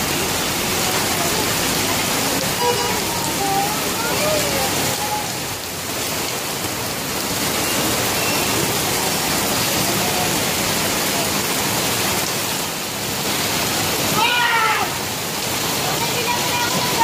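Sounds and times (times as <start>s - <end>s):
heavy rain on a street: 0.0s - 17.0s.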